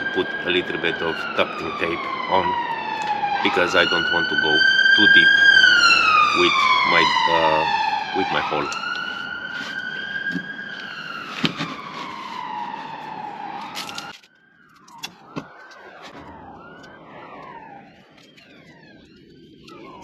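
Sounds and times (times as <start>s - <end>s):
siren wailing: 0.0s - 20.0s.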